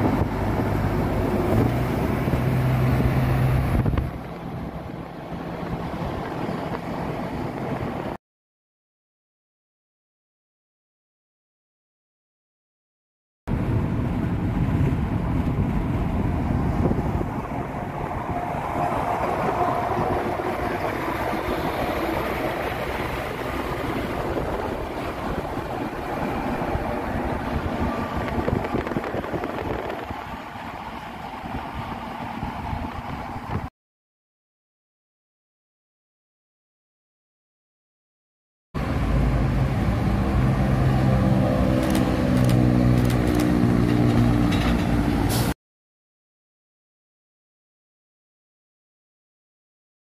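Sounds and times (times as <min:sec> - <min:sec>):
traffic passing: 0:00.0 - 0:08.2, 0:13.5 - 0:33.7, 0:38.8 - 0:45.6
truck engine and wheels: 0:00.0 - 0:08.2, 0:13.5 - 0:33.7, 0:38.8 - 0:45.6
tyre and wind noise: 0:00.0 - 0:08.2, 0:13.5 - 0:33.7, 0:38.8 - 0:45.5.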